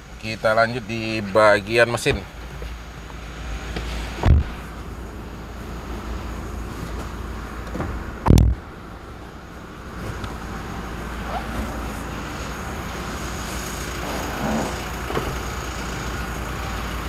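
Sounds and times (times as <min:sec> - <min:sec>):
truck door slamming: 0:07.6 - 0:08.6, 0:13.8 - 0:15.8.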